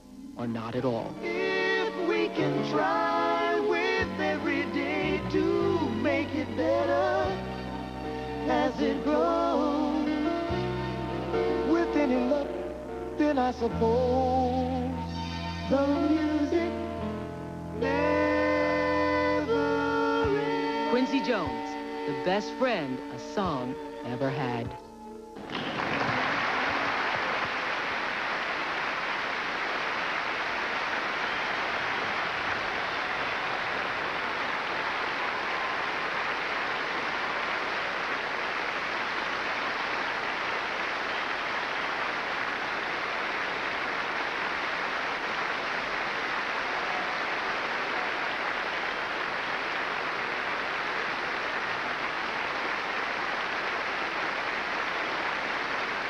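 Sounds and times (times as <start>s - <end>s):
audience applauding: 25.4s - 56.0s.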